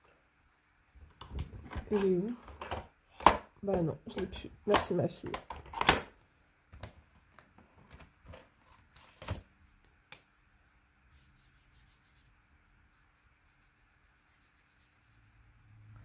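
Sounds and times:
marker tip rubbing on paper: 11.2 - 15.4.

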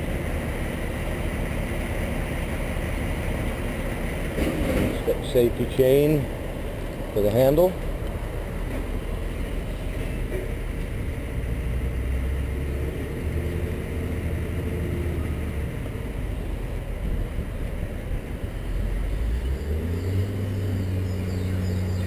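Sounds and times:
diesel engine revving: 0.0 - 22.0.

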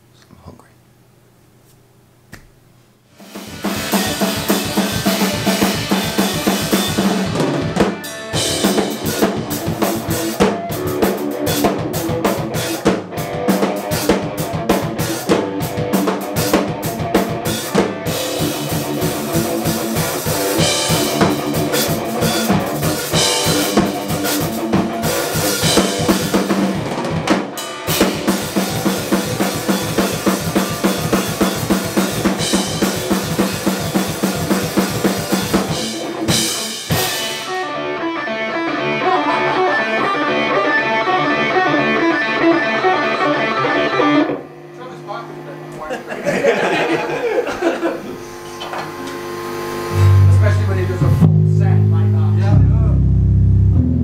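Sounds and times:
rock band playing live: 3.2 - 44.4, 49.9 - 54.0.

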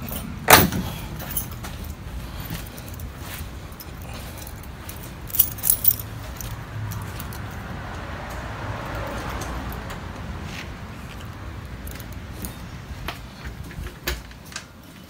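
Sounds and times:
keys jangling: 0.0 - 7.6.

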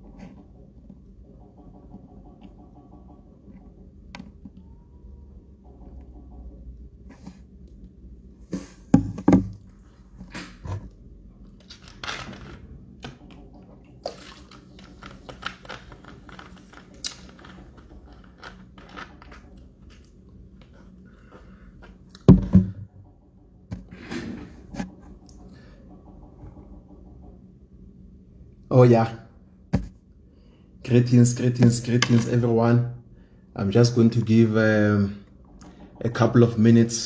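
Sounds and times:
plastic bottle crackling: 14.0 - 19.6
loud dull thunks: 22.3 - 22.9.

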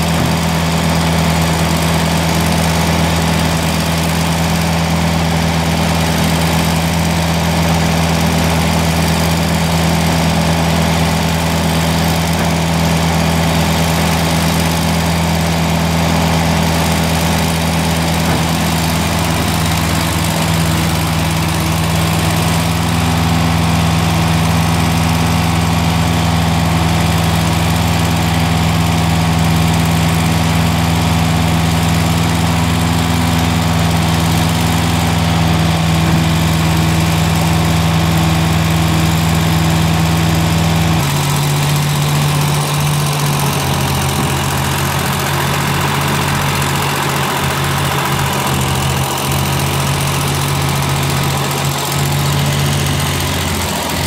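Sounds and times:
bale chopper shredding straw: 0.0 - 54.0
tractor engine running: 0.0 - 54.0.

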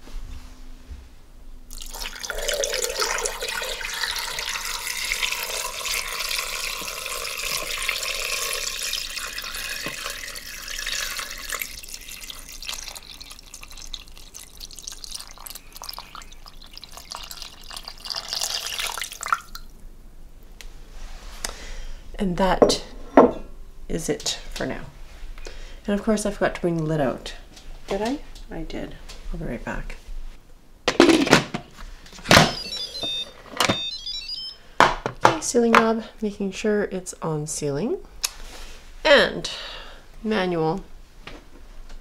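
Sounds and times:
water pouring into metal pot: 1.7 - 19.7.

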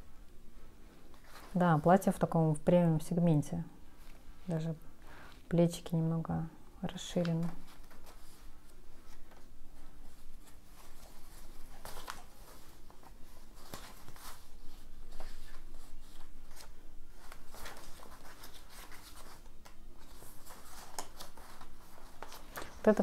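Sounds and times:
paper pages rustling: 1.1 - 1.9, 7.2 - 23.0.

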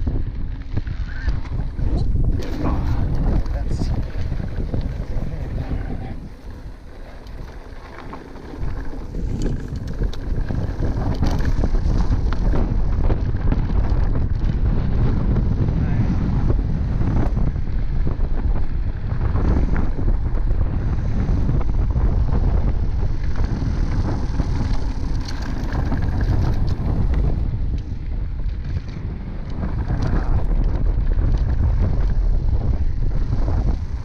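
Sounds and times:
bike knocks and rattles: 0.0 - 15.7
bike tyres on dirt: 0.0 - 34.0
wind rumbling on microphone: 0.0 - 34.0.

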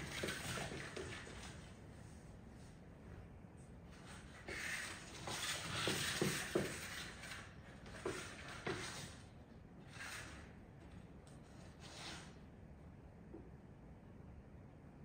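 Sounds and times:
plastic box scraping on wooden floor: 4.4 - 9.2.

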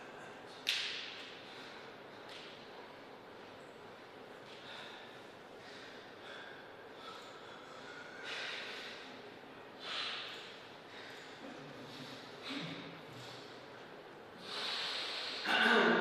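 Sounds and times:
short breathy hisses: 14.4 - 15.5.

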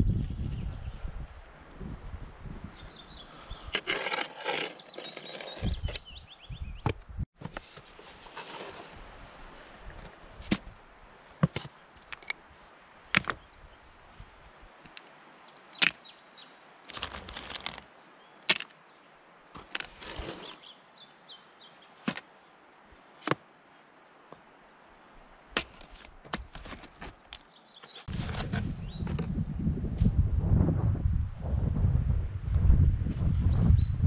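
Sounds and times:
scraping rustles: 3.8 - 6.0, 7.5 - 9.0, 19.6 - 20.7.

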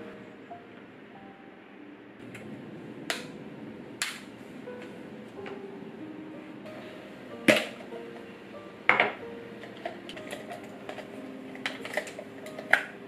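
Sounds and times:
soft piano music: 0.0 - 13.0.

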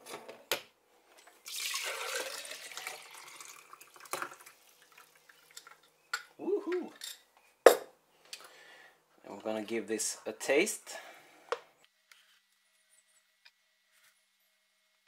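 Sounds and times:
coffee splashing pour: 1.4 - 5.9
brief wordless vocal sound: 6.4 - 6.9.

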